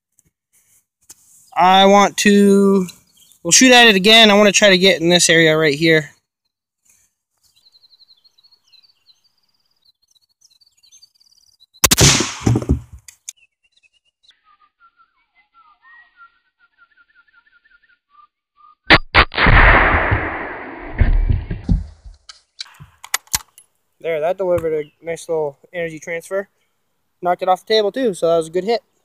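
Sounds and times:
birds singing: 2.6s - 4.8s, 5.4s - 11.9s, 13.2s - 18.9s, 23.5s - 29.0s
loud gunshot: 11.8s - 12.8s, 18.9s - 21.8s.

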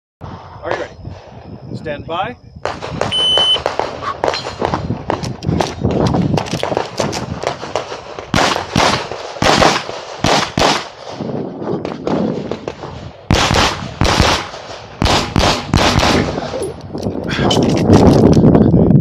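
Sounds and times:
pistol firing rapid shots: 2.6s - 11.0s, 12.0s - 16.4s.

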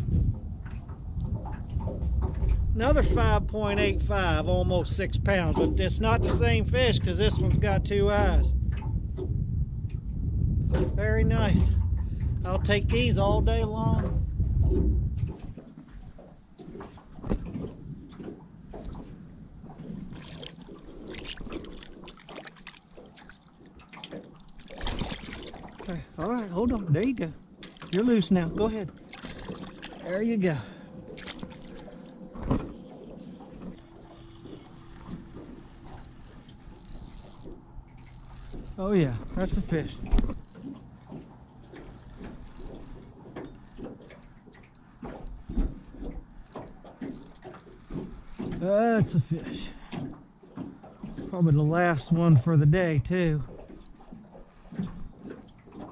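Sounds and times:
fish thrashing in water: 14.6s - 26.7s, 27.4s - 51.6s, 53.4s - 55.9s
fishing reel cranking: 33.2s - 48.7s, 53.5s - 55.6s.

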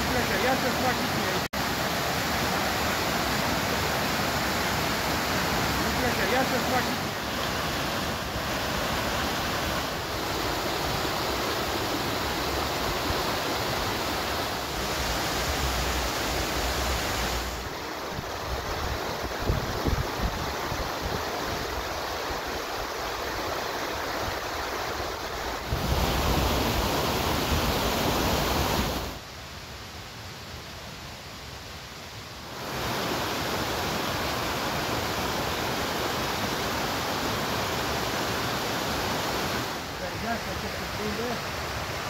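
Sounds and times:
stream rushing over rocks: 0.0s - 42.0s
wind rumble on microphone: 18.0s - 21.8s.

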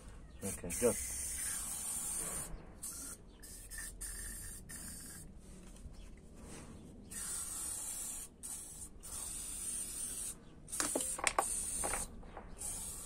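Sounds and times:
aerosol spray hissing: 0.7s - 5.2s, 7.1s - 13.0s.

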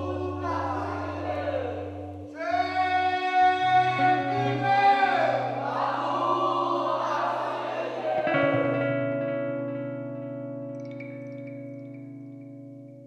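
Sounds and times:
voices singing together: 0.0s - 8.9s.

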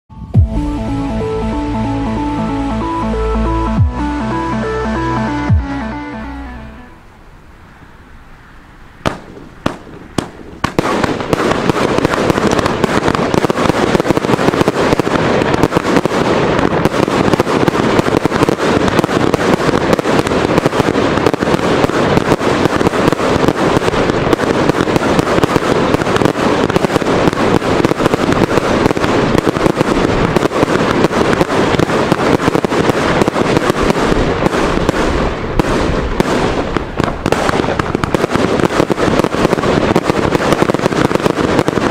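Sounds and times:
firework barrage: 0.1s - 41.9s
firework bangs: 8.4s - 41.9s.

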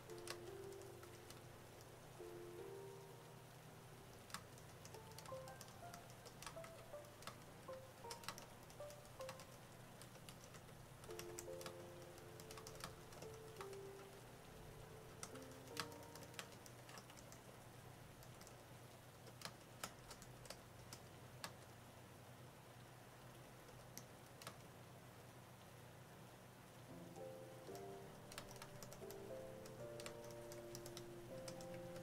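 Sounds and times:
faint background music: 0.0s - 22.7s, 26.8s - 32.0s
keyboard key clicks: 4.2s - 13.8s, 15.2s - 17.4s, 27.7s - 32.0s.

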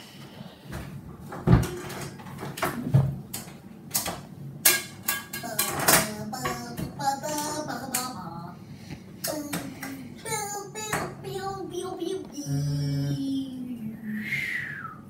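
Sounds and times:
kitchen knocks and clinks: 1.4s - 7.0s
voice making wordless sounds: 9.3s - 14.5s.

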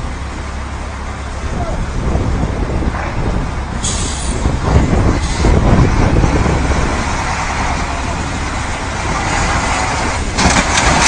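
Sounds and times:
diesel truck engines running: 0.0s - 11.0s
short sharp air hiss: 3.8s - 4.4s.

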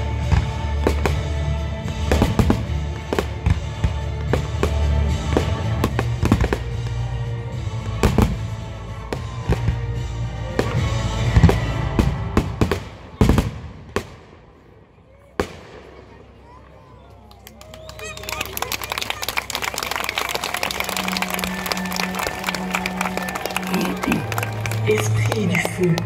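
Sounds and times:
steady music: 0.0s - 12.8s, 19.4s - 26.0s.

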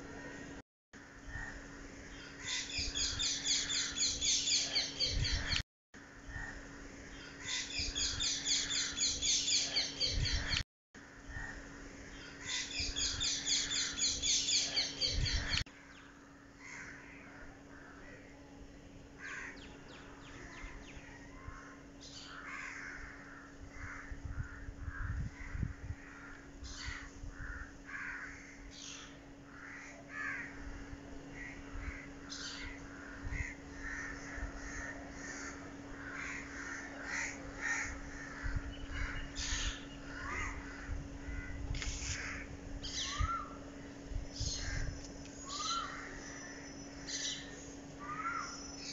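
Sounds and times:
steady low hum: 0.0s - 48.9s
other birds calling: 0.1s - 18.4s, 19.1s - 48.9s
crows cawing: 1.0s - 2.7s, 11.1s - 11.7s, 16.5s - 18.2s, 19.2s - 19.7s, 21.2s - 28.7s, 29.4s - 42.5s, 45.5s - 48.6s.

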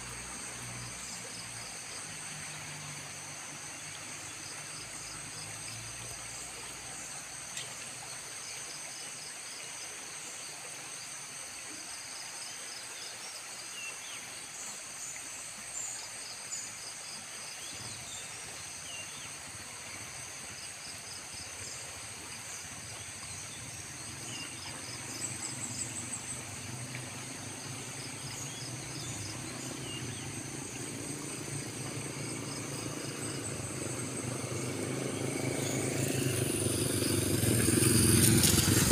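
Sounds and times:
insects chirping and buzzing: 0.0s - 38.9s
vehicle engine hum: 24.0s - 38.9s.

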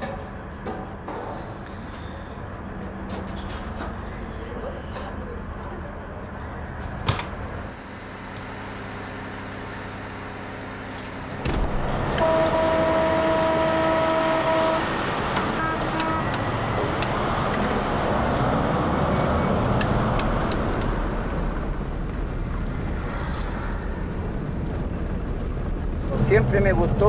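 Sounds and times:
truck horn blasts: 11.8s - 16.8s.

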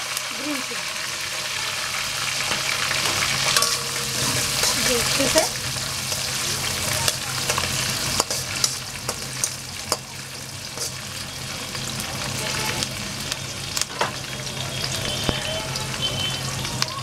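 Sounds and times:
food sizzling in hot oil: 0.0s - 17.0s
spatula scraping pan: 1.5s - 11.1s.

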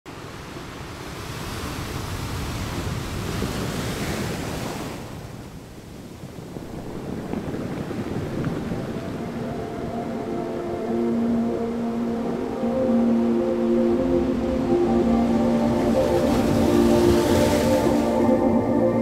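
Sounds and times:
wind: 0.0s - 19.0s
ocean waves: 0.1s - 19.0s.

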